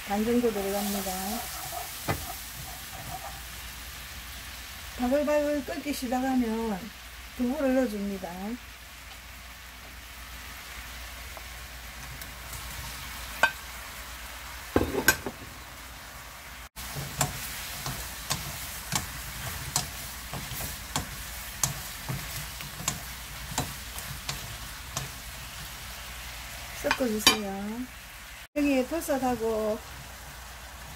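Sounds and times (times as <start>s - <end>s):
sauce sizzling and bubbling: 0.0s - 30.9s
wooden spoons knocking pan: 14.8s - 15.5s, 16.9s - 25.2s, 26.8s - 27.5s.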